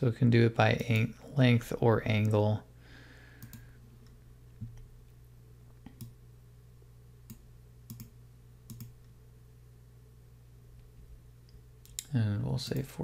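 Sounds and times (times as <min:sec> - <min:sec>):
faint low hum: 0:00.0 - 0:13.0
computer mouse clicking: 0:03.4 - 0:04.8, 0:05.8 - 0:06.2, 0:07.3 - 0:08.1, 0:08.7 - 0:09.0.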